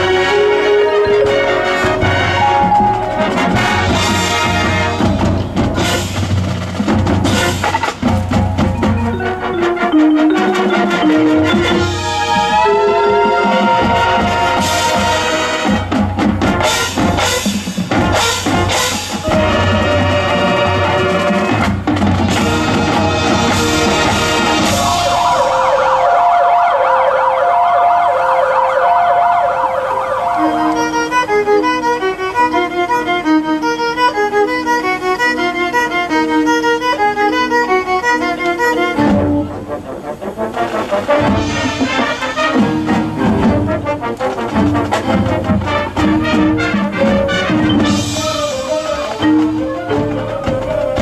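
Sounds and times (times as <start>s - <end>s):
marching band playing: 0.0s - 51.0s
drum hits: 1.3s - 9.6s, 13.4s - 20.2s, 21.3s - 26.2s, 40.8s - 51.0s
violin: 9.0s - 16.4s, 30.4s - 39.9s.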